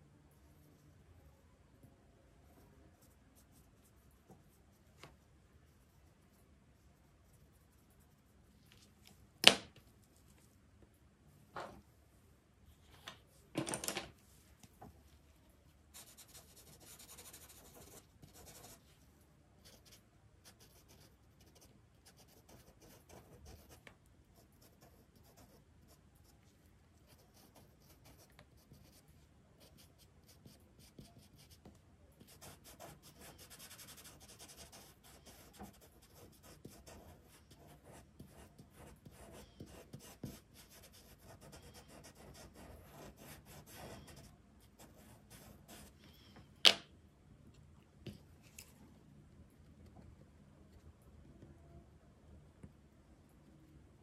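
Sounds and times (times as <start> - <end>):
pencil scratching on paper: 15.9 - 18.8, 19.6 - 26.3, 27.0 - 46.0.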